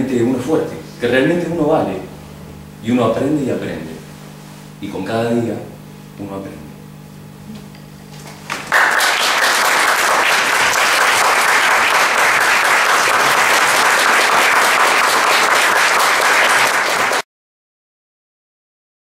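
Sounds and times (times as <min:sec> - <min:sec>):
audience applauding: 0:08.2 - 0:17.2.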